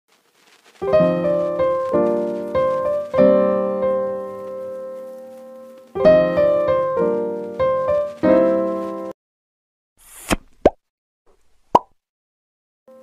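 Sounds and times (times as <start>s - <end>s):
piano chords ringing: 0.8s - 9.1s.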